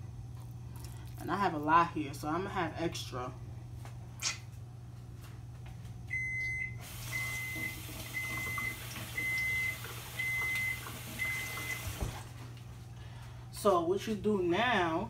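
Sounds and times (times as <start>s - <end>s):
appliance beeping: 6.0s - 12.2s.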